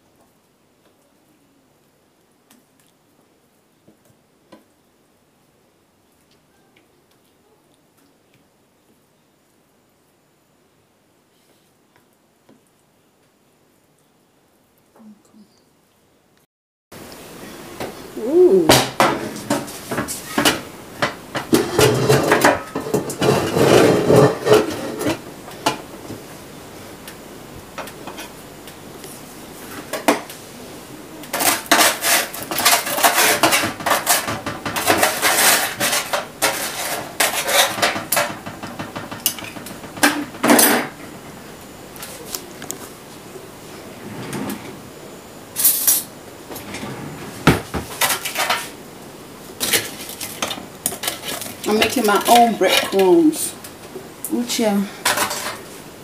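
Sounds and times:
metal baking tray clattering: 18.7 - 25.2, 31.3 - 41.0, 47.7 - 48.8, 49.6 - 53.5, 55.0 - 55.6.

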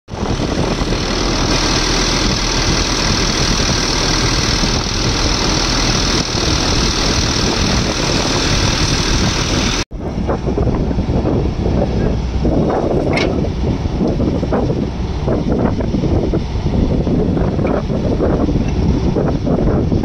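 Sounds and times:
diesel engine running: 0.1 - 20.0.

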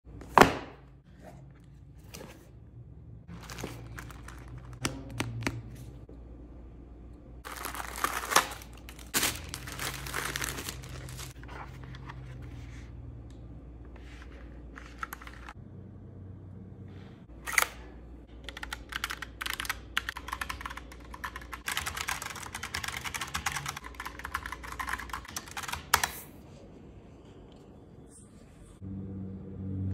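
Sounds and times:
cardboard packaging crinkling: 3.3 - 4.8, 7.4 - 11.4
keyboard typing clatter: 18.4 - 26.2.

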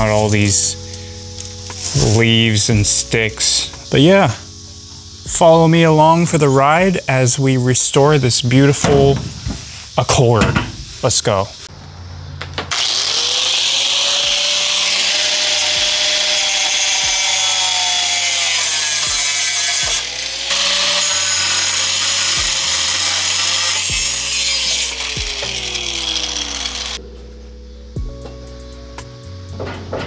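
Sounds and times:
power tool grinding with rasping hiss: 0.0 - 10.1, 12.7 - 27.0
bass-heavy beat: 28.0 - 29.2.

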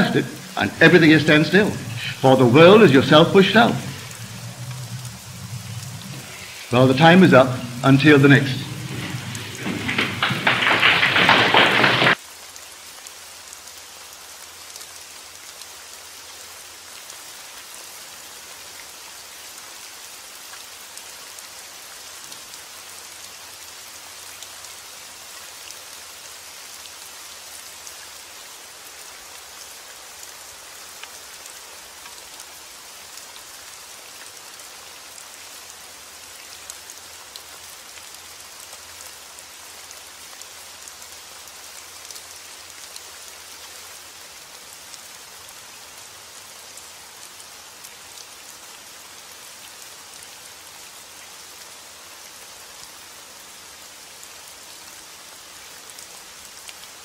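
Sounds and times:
loud crackling noise: 0.0 - 12.4
steady rain falling: 0.0 - 57.0.

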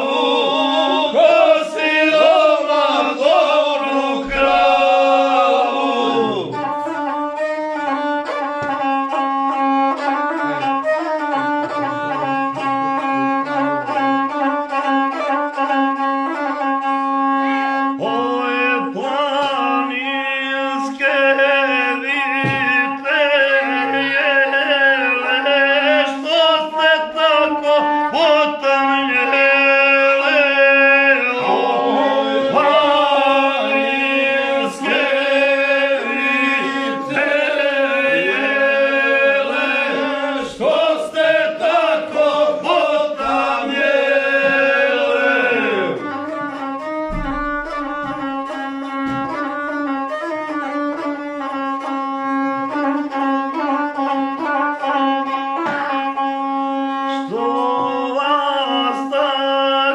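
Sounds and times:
man singing: 0.0 - 6.8, 18.0 - 46.2, 54.8 - 59.9
droning bowed fiddle: 0.0 - 59.9.

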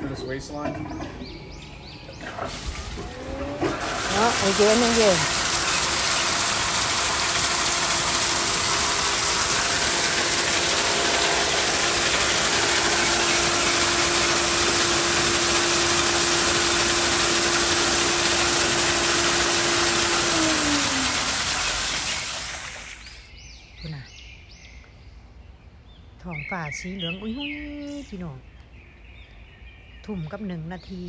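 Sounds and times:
pump humming: 2.1 - 23.3
water rushing out: 2.5 - 23.3.

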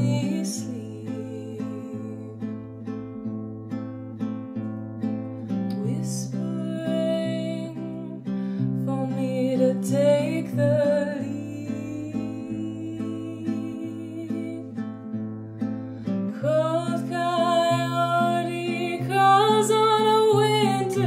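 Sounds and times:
fingerpicked classical guitar: 0.0 - 21.0
wordless vocal singing: 16.4 - 21.0.

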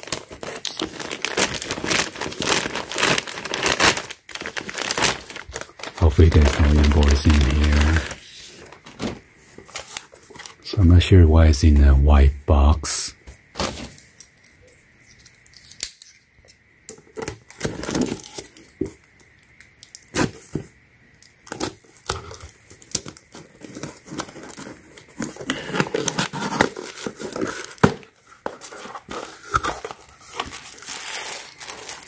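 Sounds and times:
tissue paper rustling: 0.0 - 10.5, 28.5 - 32.0.

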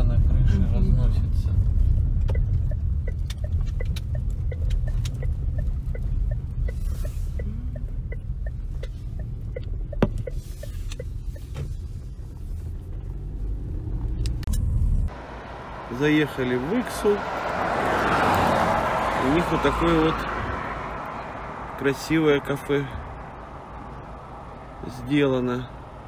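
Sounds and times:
road rumble inside car: 0.0 - 26.0
turn signal ticking: 1.6 - 15.3.

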